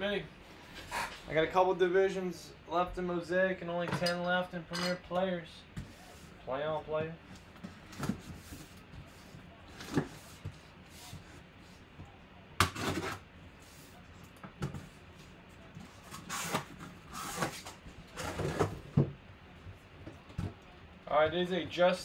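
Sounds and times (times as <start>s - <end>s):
cardboard scraping: 15.9s - 18.9s.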